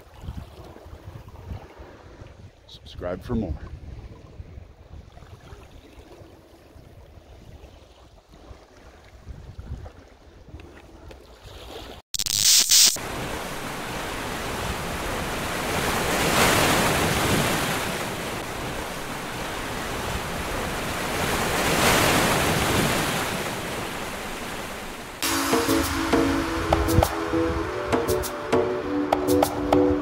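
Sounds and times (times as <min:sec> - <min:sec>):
ocean surf washing ashore: 0:13.0 - 0:30.0.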